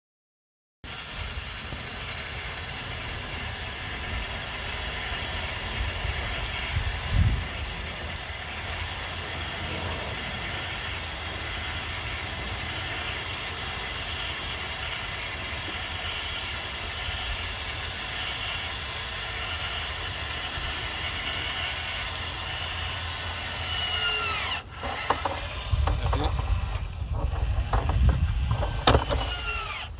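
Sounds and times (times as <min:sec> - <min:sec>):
machinery hissing and rubbing: 0:09.4 - 0:10.7
low rumbling and knocking: 0:25.0 - 0:29.8.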